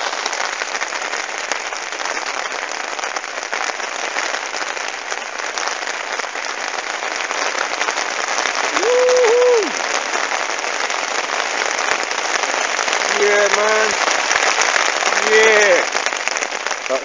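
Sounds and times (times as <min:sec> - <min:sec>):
heavy rain on a lake: 0:00.0 - 0:17.0.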